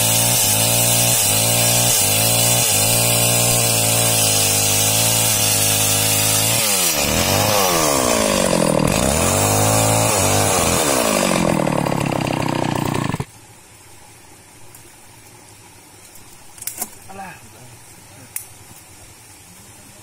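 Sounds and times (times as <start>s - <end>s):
chainsaw cutting log: 0.0s - 13.3s.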